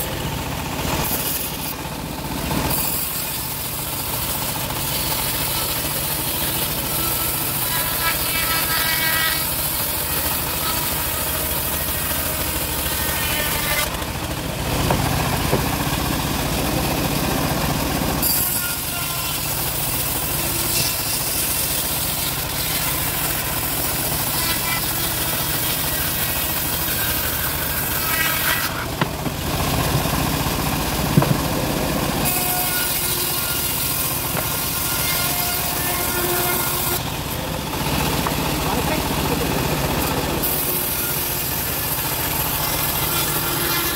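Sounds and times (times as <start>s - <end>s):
bandsaw mill sawing log: 0.0s - 43.9s
sharp knocks: 14.8s - 15.8s, 31.1s - 31.5s.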